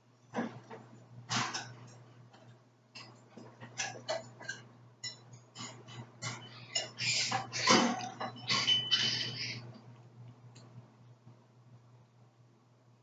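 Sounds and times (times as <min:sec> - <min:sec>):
fork clicking and scraping plate: 0:03.0 - 0:09.6.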